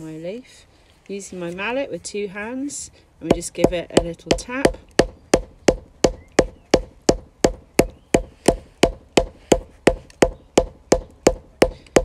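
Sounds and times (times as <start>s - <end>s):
wooden mallet pounding: 3.3s - 12.0s.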